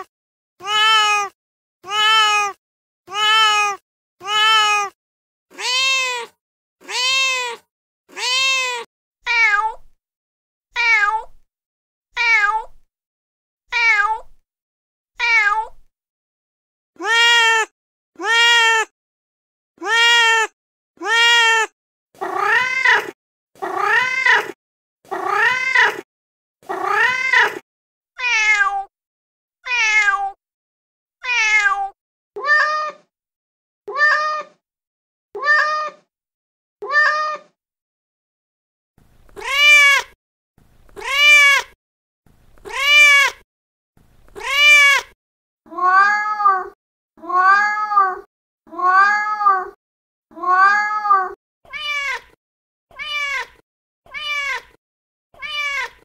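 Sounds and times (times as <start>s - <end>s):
recorded cat meows: 0.0s - 10.0s, 10.7s - 11.4s, 12.1s - 12.8s, 13.7s - 14.4s, 15.2s - 15.9s, 17.0s - 18.9s, 19.8s - 26.0s, 26.6s - 27.6s, 28.2s - 28.9s, 29.6s - 30.4s, 31.2s - 33.1s, 33.9s - 34.6s, 35.4s - 36.1s, 36.8s - 37.6s, 39.3s - 40.2s, 40.9s - 41.8s, 42.6s - 43.4s, 44.3s - 54.8s, 55.4s - 56.0s.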